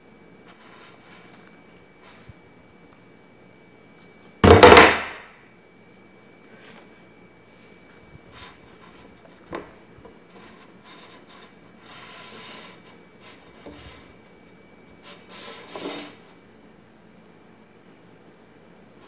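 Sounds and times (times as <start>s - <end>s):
rustling scrape: 0.4s - 2.3s, 10.3s - 14.2s, 15.0s - 16.3s
banana scraping on ceramic plate: 10.3s - 14.1s, 15.1s - 16.2s.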